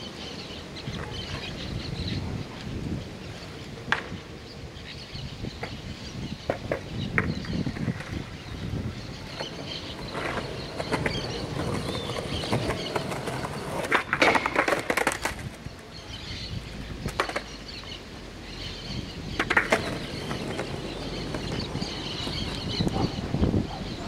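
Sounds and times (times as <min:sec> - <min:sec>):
skateboard wheels rolling on concrete: 0:00.0 - 0:24.0
skateboard clacking on ground: 0:03.4 - 0:04.3, 0:05.6 - 0:16.3, 0:17.0 - 0:18.0, 0:19.3 - 0:23.3.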